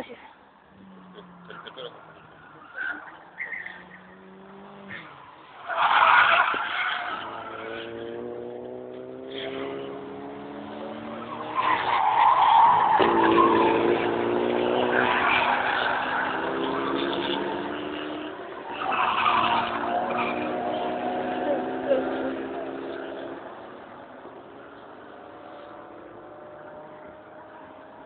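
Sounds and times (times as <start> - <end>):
tires squealing: 0.8 - 23.5
race car engine accelerating: 3.8 - 23.6.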